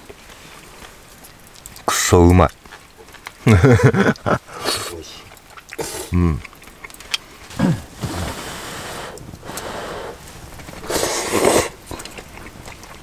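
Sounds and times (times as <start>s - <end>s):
person slurping broth: 4.5s - 5.0s, 5.8s - 6.5s, 7.5s - 12.1s
person blowing on hot food: 5.8s - 6.4s, 7.5s - 10.2s, 10.8s - 11.8s
person grunting: 5.8s - 6.4s, 7.5s - 7.9s.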